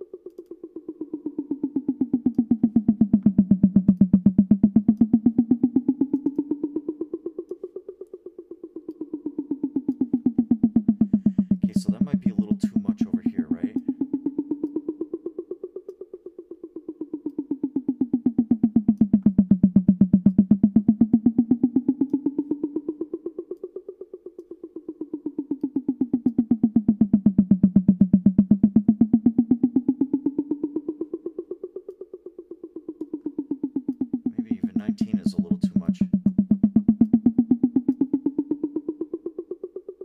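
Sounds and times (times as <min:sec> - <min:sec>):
rapidly repeated drum sample: 0:10.8 - 0:13.8, 0:34.2 - 0:37.2.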